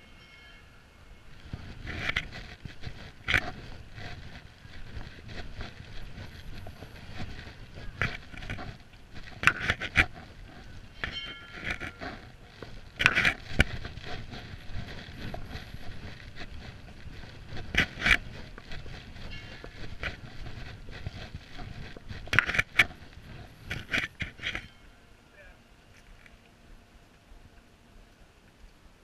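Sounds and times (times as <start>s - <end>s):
low street rumble: 0.0s - 29.0s.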